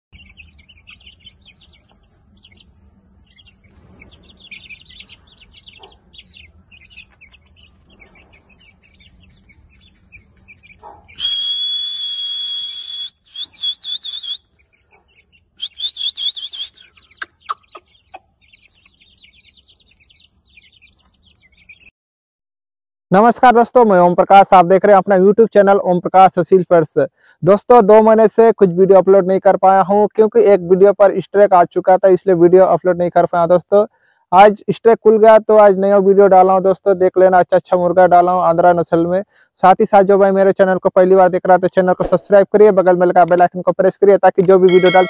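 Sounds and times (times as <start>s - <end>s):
chicks cheeping: 0.1s - 21.9s, 44.7s - 45.0s.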